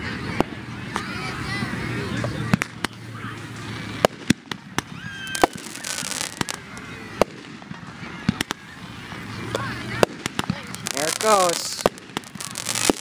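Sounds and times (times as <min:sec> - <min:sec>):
fireworks bangs and pops: 0:02.5 - 0:03.0, 0:03.6 - 0:08.7, 0:09.5 - 0:13.0.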